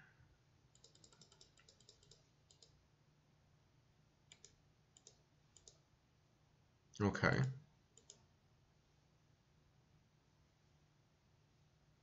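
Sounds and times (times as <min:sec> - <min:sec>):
faint computer clicks: 0:00.8 - 0:02.8, 0:04.3 - 0:05.8, 0:07.4 - 0:08.3.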